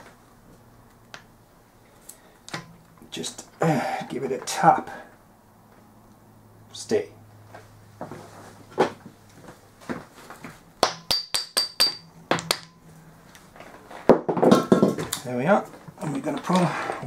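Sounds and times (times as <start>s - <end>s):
hammer tapping on metal: 10.8s - 12.8s.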